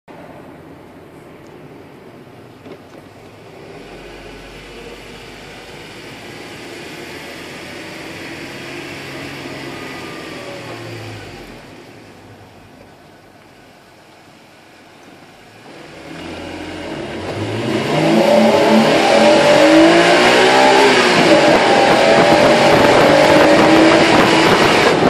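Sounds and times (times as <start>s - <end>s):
road noise: 0.1s - 25.0s
car engine accelerating: 3.2s - 12.3s, 15.4s - 25.0s.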